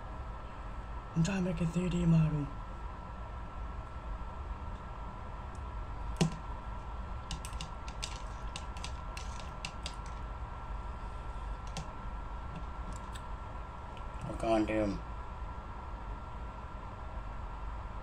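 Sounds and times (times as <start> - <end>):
steady hum: 0.0 - 18.0
sharp knock: 6.2 - 6.4
light clicks and taps: 7.2 - 10.2, 11.6 - 11.9.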